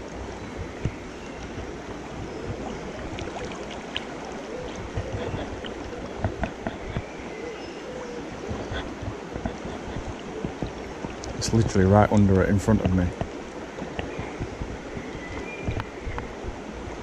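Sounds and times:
river water rippling: 0.0s - 17.0s
faint knocks and clicks: 4.7s - 7.1s, 8.4s - 16.3s.

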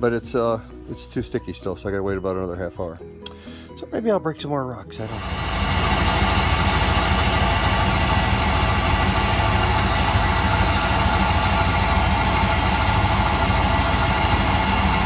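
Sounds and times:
truck engine idling: 5.0s - 15.0s.

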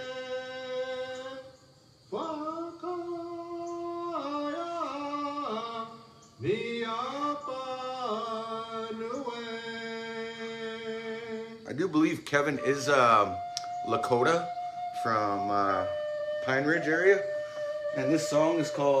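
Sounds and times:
flute melody: 11.9s - 19.0s.

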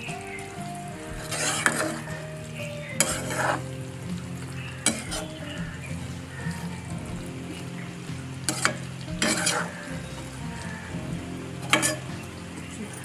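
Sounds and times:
curry sizzling in pan: 0.0s - 13.0s
spatula scraping pan: 1.2s - 2.2s, 3.0s - 3.6s, 8.4s - 9.9s, 11.6s - 12.3s.

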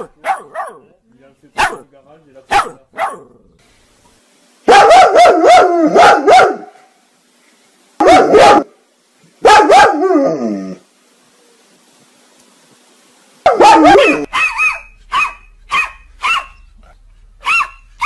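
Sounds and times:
dog barking loudly: 0.0s - 0.9s, 1.6s - 1.8s, 2.5s - 3.3s, 4.7s - 6.8s, 8.0s - 8.8s, 9.4s - 10.3s, 13.4s - 16.7s, 17.4s - 18.0s.

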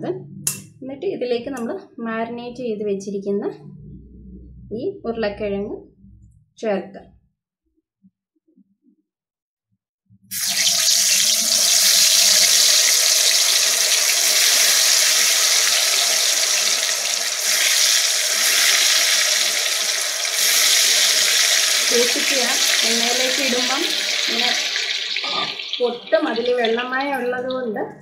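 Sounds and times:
potatoes sizzling in hot oil: 10.3s - 27.5s.

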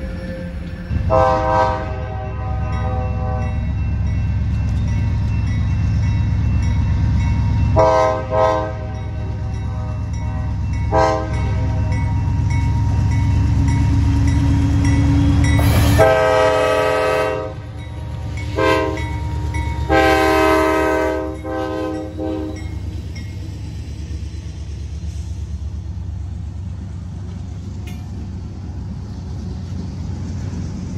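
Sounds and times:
train horn blasts: 0.0s - 3.8s, 7.7s - 12.3s, 15.3s - 22.8s
diesel locomotive engine rumbling: 0.0s - 30.9s
train rolling past: 0.0s - 30.9s.

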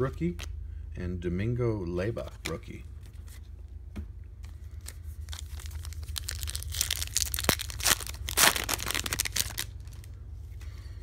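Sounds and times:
foil wrapper crinkling and tearing: 4.7s - 10.2s.

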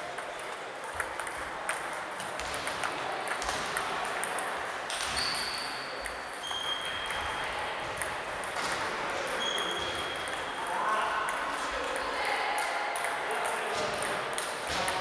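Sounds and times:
table tennis ball clicking: 0.2s - 10.4s, 11.3s - 15.0s
short high squeaks: 5.0s - 7.2s, 9.4s - 10.3s.

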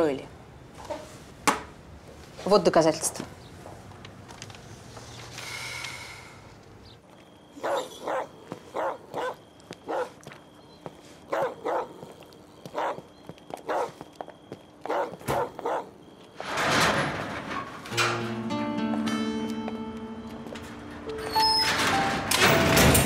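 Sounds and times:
dog barking: 7.6s - 10.2s, 11.3s - 14.0s, 14.8s - 16.0s.

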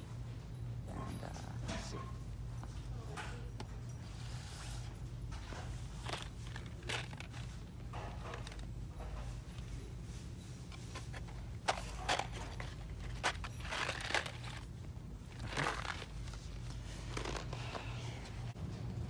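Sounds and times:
steady low hum: 0.0s - 19.0s
cardboard boxes rustling and scraping: 9.3s - 14.6s, 15.3s - 18.6s.

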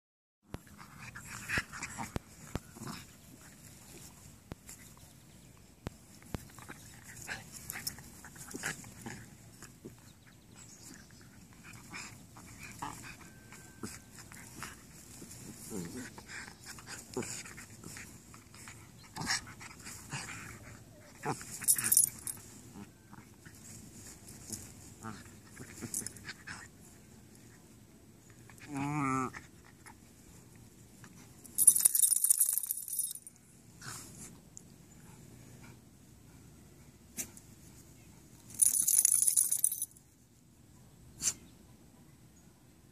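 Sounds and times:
dogs play-fighting: 0.5s - 33.0s
dog growling: 15.6s - 16.3s, 28.6s - 29.5s
harness tags jingling: 21.3s - 22.6s, 25.5s - 26.3s, 31.4s - 33.4s, 38.4s - 40.0s.

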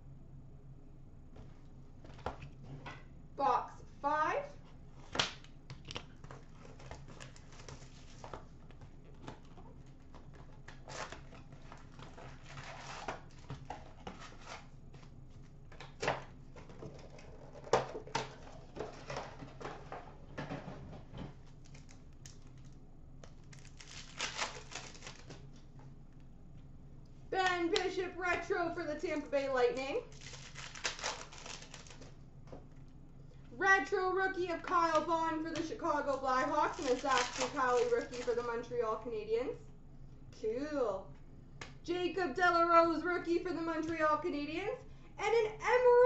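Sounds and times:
wrappers crinkling and tearing: 6.1s - 8.6s, 10.1s - 14.7s, 21.5s - 25.6s, 30.0s - 32.2s, 36.1s - 38.7s
cards shuffling: 23.3s - 25.5s, 30.1s - 32.1s, 36.4s - 38.6s.

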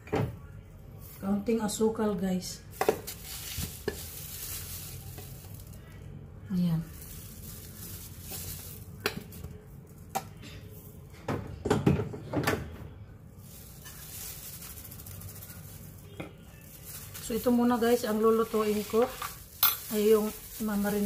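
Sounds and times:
metal spoons clinking on bowl: 19.6s - 20.1s.

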